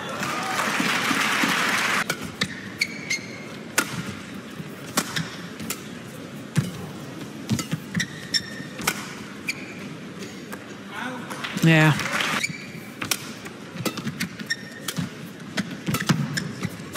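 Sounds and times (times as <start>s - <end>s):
shoes squeaking on court: 2.2s - 4.2s, 5.0s - 10.5s, 12.4s - 13.1s, 13.8s - 16.9s
rackets striking shuttlecock: 8.8s - 9.2s, 13.0s - 16.9s.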